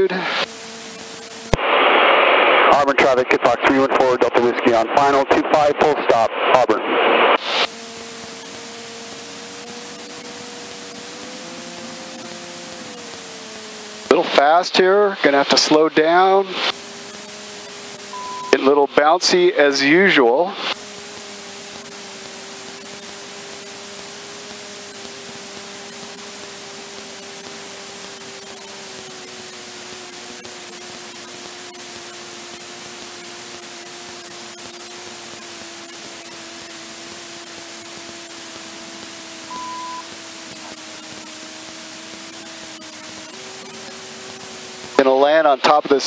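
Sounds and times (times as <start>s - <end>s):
static hiss: 0.0s - 46.0s
aircraft engine low hum: 7.5s - 18.8s
short high beep: 18.1s - 18.6s, 39.5s - 40.1s.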